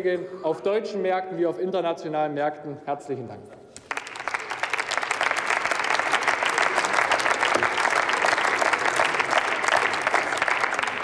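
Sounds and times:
crowd applauding: 3.8s - 11.0s.

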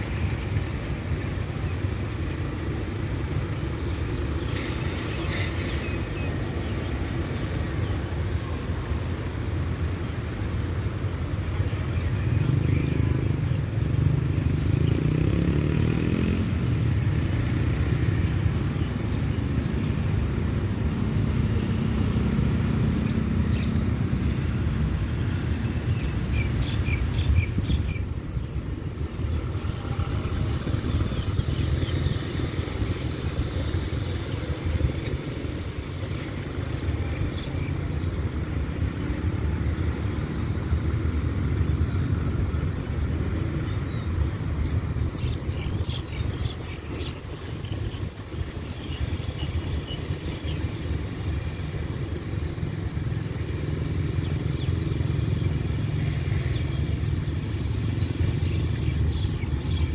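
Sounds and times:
road traffic rumble: 0.0s - 59.9s
wind: 0.0s - 59.9s
vehicle engine accelerating: 12.4s - 27.6s.

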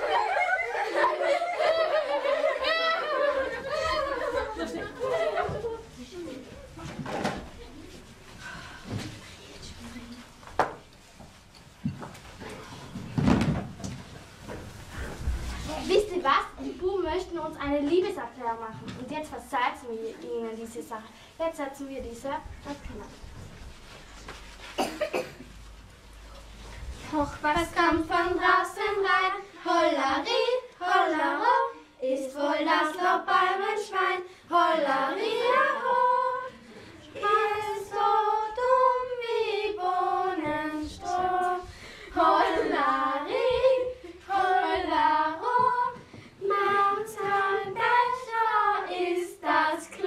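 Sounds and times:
girls singing together: 0.0s - 6.0s, 27.0s - 50.0s.

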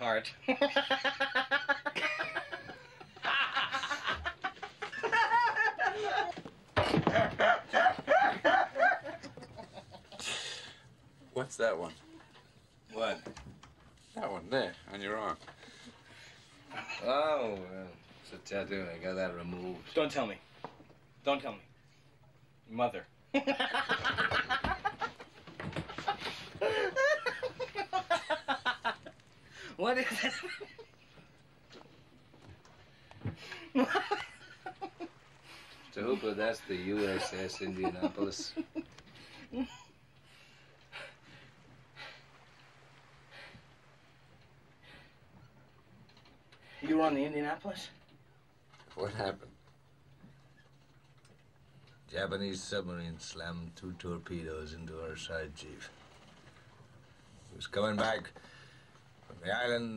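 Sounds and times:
men laughing heartily: 0.5s - 10.7s, 23.3s - 31.3s, 33.4s - 40.0s.

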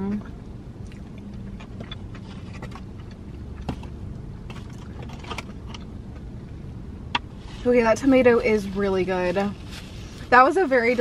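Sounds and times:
low car cabin hum: 0.0s - 11.0s
chewing crispy food: 0.8s - 6.2s.

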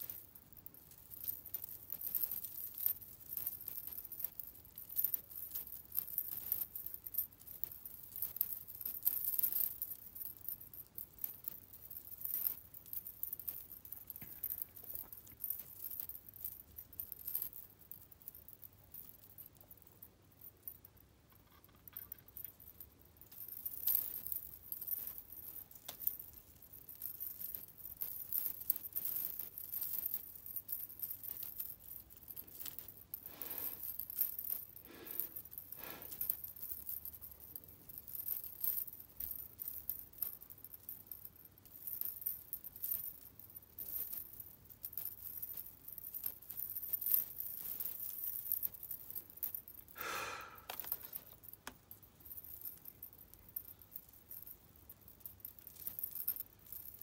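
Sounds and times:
hair clips clinking: 45.4s - 54.5s.

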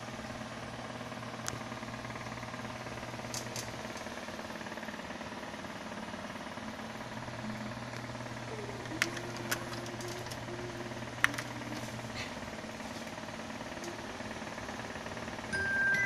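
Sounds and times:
cassette deck mechanical hum: 0.0s - 16.0s
cassette mechanism clicks: 3.3s - 4.1s, 8.8s - 11.9s.

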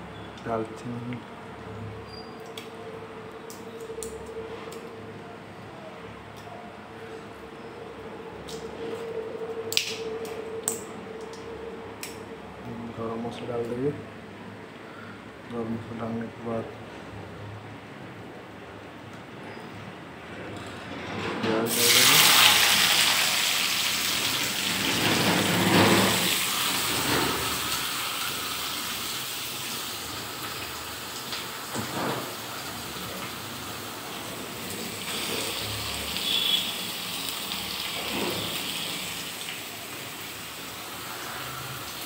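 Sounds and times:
hot oil sizzling: 21.7s - 42.0s.

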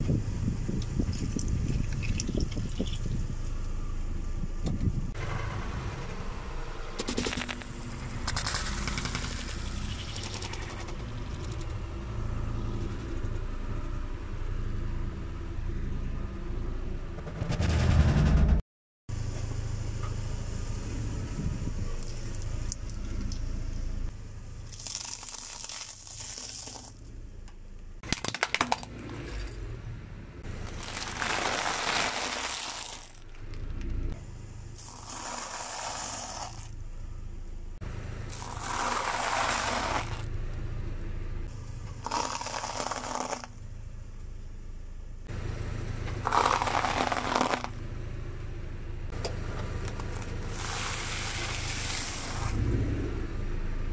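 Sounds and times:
low engine rumble: 0.0s - 53.9s
tyres crushing objects: 24.7s - 27.0s, 30.5s - 33.2s, 42.0s - 43.6s, 46.2s - 47.8s.

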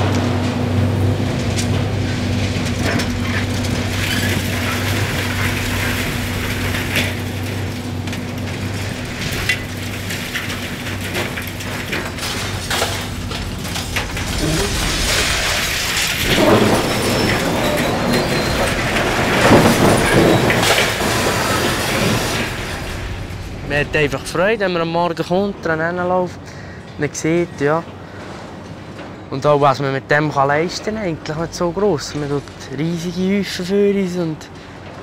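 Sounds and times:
hydraulic crusher crushing concrete: 0.0s - 24.8s
debris clattering down: 0.0s - 25.8s
excavator diesel engine running: 0.0s - 26.0s.

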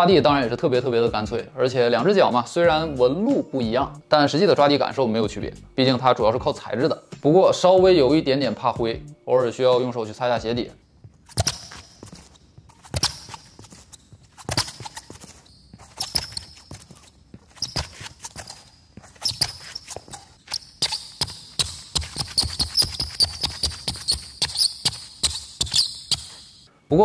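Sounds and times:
shoes squeaking on hardwood court: 10.9s - 26.7s.

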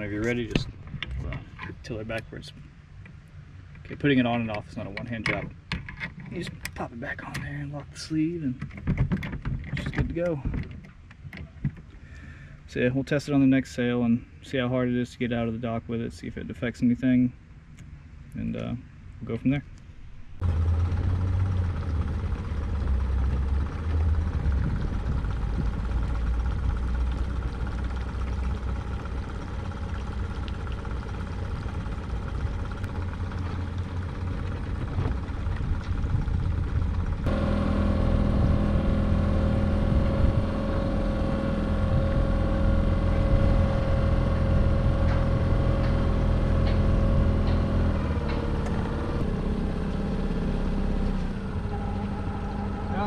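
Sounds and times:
engine running: 0.0s - 5.4s, 20.1s - 53.0s
engine hum with pitched tones: 0.0s - 11.1s, 17.5s - 53.0s.

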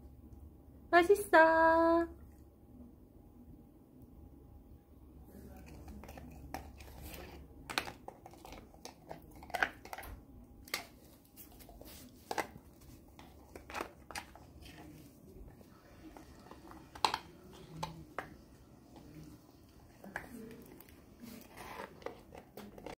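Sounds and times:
dog chewing a hard treat: 5.5s - 15.0s.

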